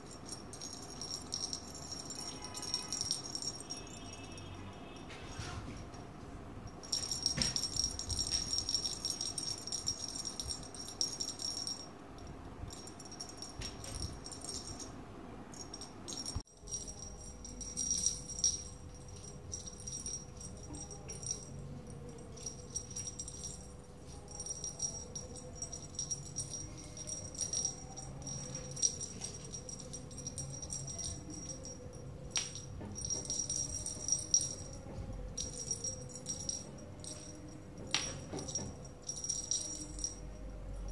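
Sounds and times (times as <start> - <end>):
small bell jingling: 0.0 - 5.1, 6.7 - 40.9.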